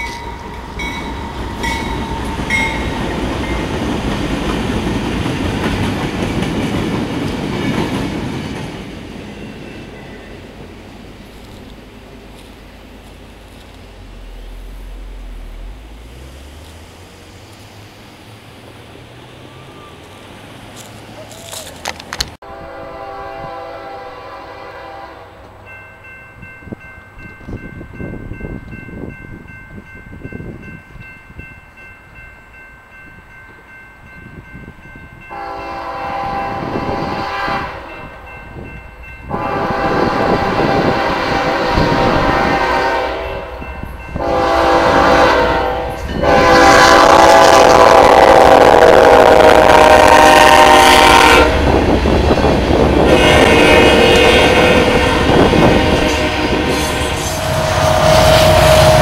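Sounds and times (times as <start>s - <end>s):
crossing warning bell ringing: 0.0s - 17.5s, 22.5s - 59.0s
train rumbling: 0.0s - 59.0s
locomotive horn blasts: 22.4s - 25.5s, 35.3s - 38.2s, 39.2s - 51.9s, 52.8s - 59.0s.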